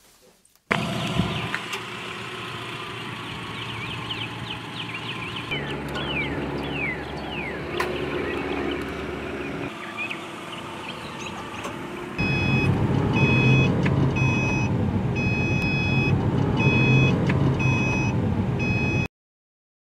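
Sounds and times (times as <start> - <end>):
car engine hum: 0.7 - 19.1
bird chirps: 3.2 - 12.6
seatbelt reminder chime beeping: 12.2 - 19.1.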